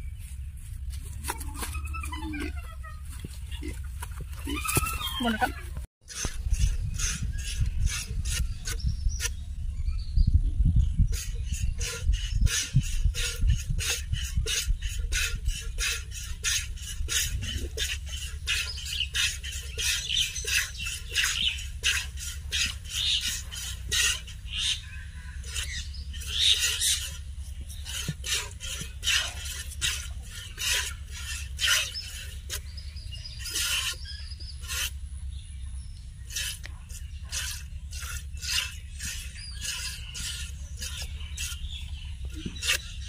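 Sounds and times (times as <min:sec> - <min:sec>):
low steady rumble: 0:00.0 - 0:43.0
milk squirting: 0:11.2 - 0:24.8, 0:25.4 - 0:35.0, 0:36.3 - 0:43.0.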